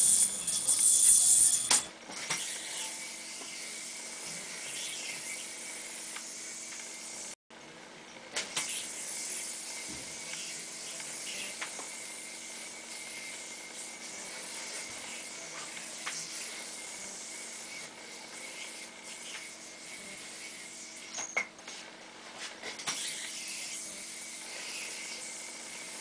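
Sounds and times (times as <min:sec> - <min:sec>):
yoyo string hissing: 0:00.0 - 0:07.4, 0:08.6 - 0:21.4.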